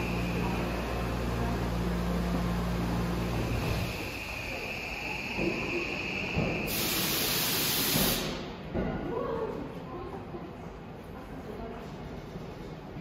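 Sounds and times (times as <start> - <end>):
train low hum: 0.0 - 8.7
train brakes air hiss: 3.2 - 8.6.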